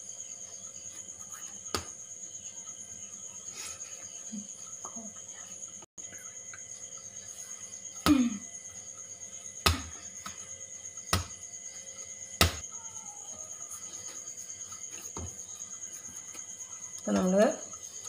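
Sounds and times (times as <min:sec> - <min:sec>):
crickets chirping: 0:00.0 - 0:18.0
dough thumping on stone: 0:09.6 - 0:10.4, 0:11.1 - 0:11.4, 0:12.4 - 0:12.6.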